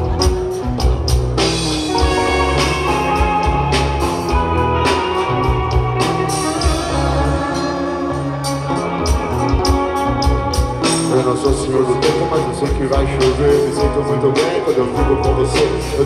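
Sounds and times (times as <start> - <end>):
drum kit with cymbal crashes: 0.0 - 7.7
electric bass: 0.0 - 16.0
electric guitar: 0.0 - 16.0.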